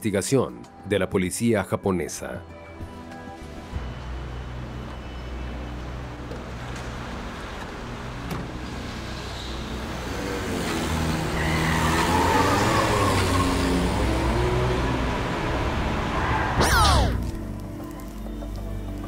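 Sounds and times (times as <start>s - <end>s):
car engine revving: 8.1s - 17.4s.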